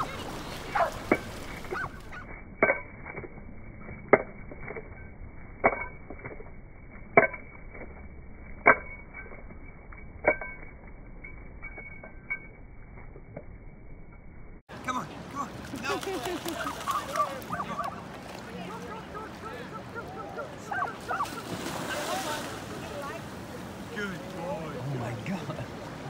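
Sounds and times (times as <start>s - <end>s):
dog shaking off water: 15.7s - 18.6s.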